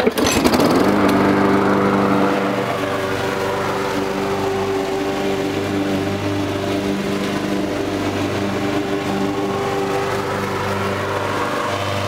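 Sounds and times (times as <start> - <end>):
lawn mower engine running: 0.0 - 12.0.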